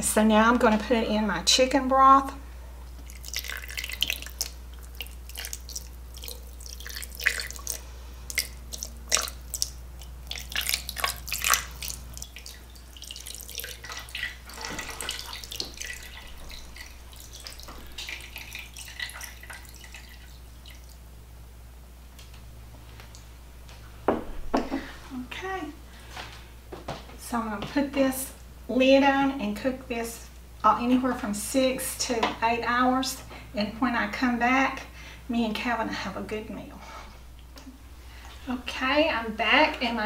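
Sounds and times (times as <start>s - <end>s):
liquid dripping: 2.9s - 21.1s
broth pouring and splashing: 3.0s - 21.0s.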